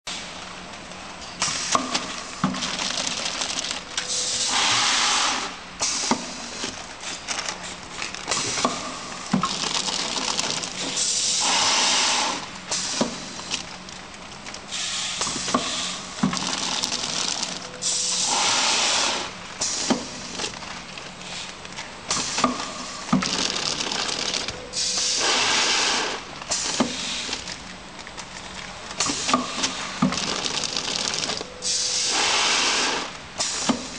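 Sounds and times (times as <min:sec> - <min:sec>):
steady machine hum: 0:00.3 - 0:33.9
machine mechanism clicks and clacks: 0:01.2 - 0:04.6, 0:05.8 - 0:11.6, 0:12.7 - 0:18.4, 0:19.6 - 0:25.4, 0:26.1 - 0:31.5.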